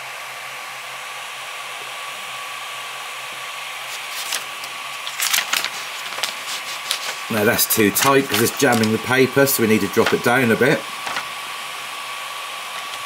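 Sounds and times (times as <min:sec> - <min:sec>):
cooling fan whine: 0:00.0 - 0:13.0
paper scratching and rustling: 0:03.9 - 0:11.3.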